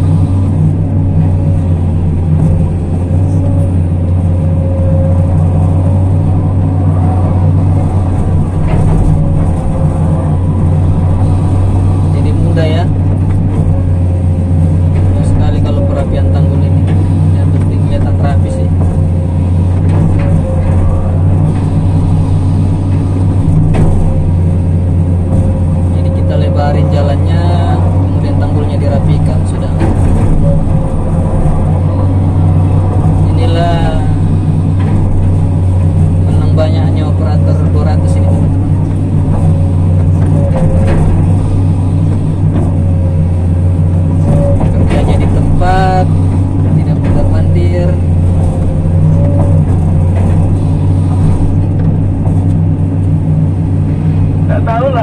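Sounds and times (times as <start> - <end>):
excavator diesel engine droning: 0.0 - 55.0
faint whine: 0.0 - 55.0
short knocks: 37.9 - 53.2.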